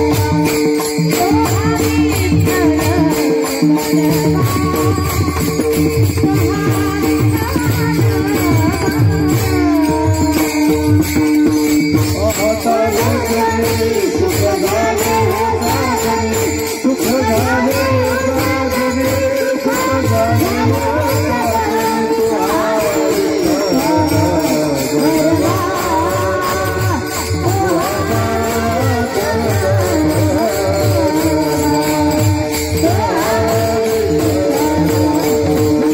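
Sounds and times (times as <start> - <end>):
woman singing lead: 0.0 - 11.7, 12.4 - 35.9
barrel drum beats: 0.0 - 35.9
hand cymbals clashing: 0.0 - 35.9
harmonium drone: 0.0 - 35.9
chorus singing: 12.1 - 35.9.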